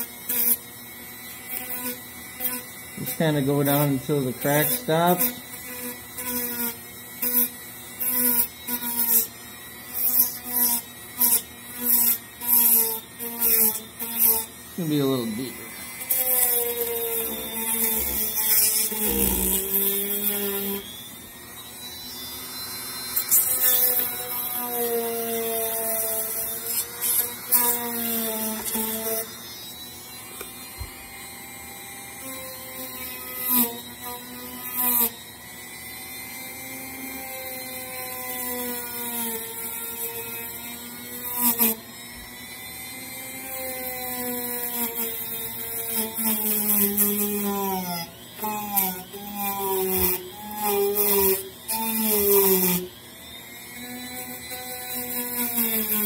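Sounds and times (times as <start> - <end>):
rotary tool motor running: 0.0 - 56.0
bit grinding into foam: 1.5 - 9.3, 10.0 - 21.0, 43.4 - 52.9, 53.7 - 56.0.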